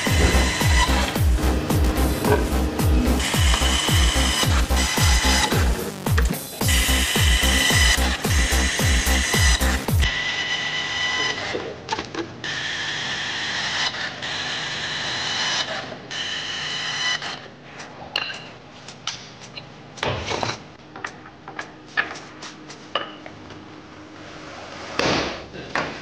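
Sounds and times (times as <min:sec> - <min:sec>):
power tool whining: 0:00.0 - 0:11.7.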